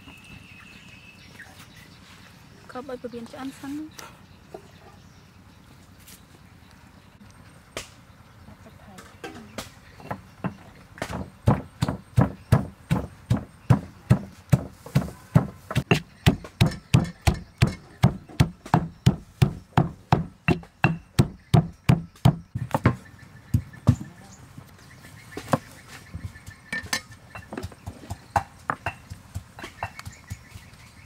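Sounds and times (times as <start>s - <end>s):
stone pestle pounding in mortar: 10.0s - 24.0s.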